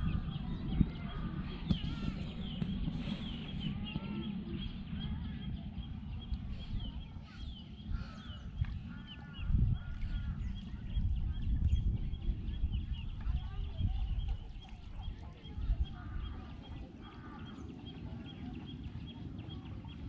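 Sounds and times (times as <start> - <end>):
low rumble: 0.0 - 18.2
birds chirping: 0.0 - 20.0
lower arched bird calls: 6.2 - 11.0.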